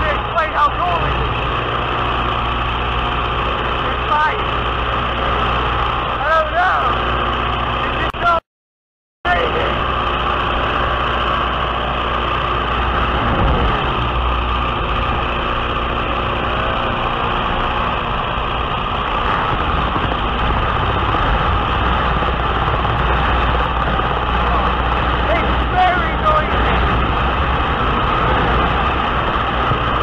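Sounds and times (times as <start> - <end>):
biplane engine running: 0.0 - 8.4, 9.3 - 30.0
wind rushing over microphone: 9.6 - 30.0.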